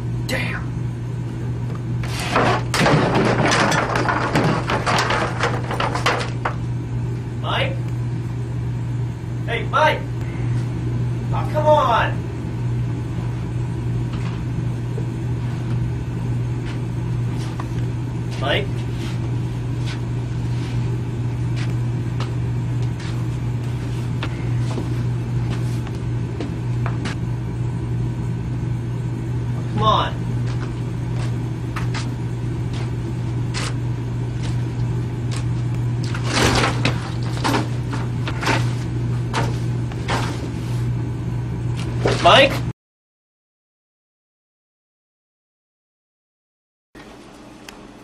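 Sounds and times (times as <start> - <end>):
steady low hum: 0.0 - 42.7
clatter of knocks and thumps: 2.2 - 6.6.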